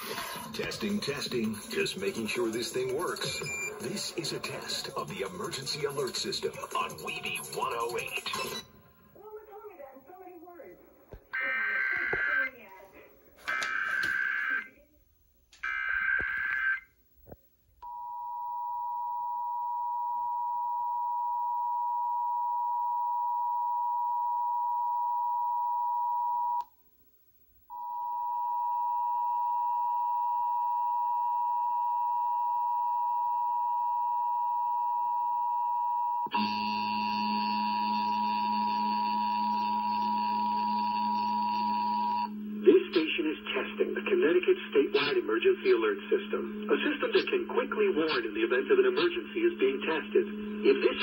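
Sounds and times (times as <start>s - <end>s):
harsh buzzing: 36.3s - 51.0s.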